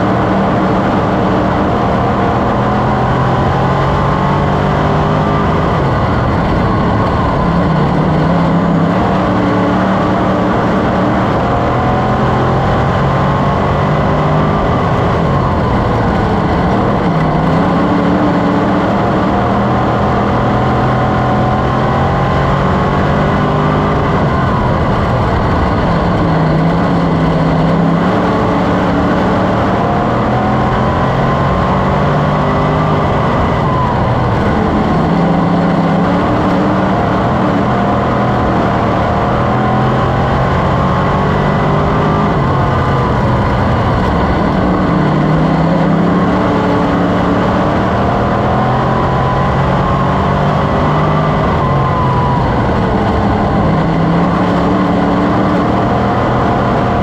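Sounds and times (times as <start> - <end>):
race car engine at speed: 0.0 - 57.0.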